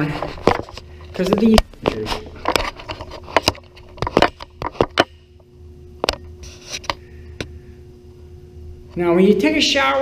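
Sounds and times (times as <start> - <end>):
light rubbing and scraping: 0.0 - 5.0, 6.4 - 7.1
steady hum: 0.0 - 10.0.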